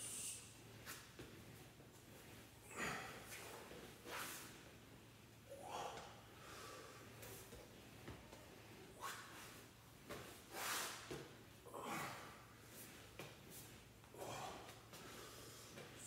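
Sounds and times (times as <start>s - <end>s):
man breathing hard: 2.6s - 3.5s, 5.5s - 7.5s, 11.7s - 13.0s, 14.0s - 16.0s.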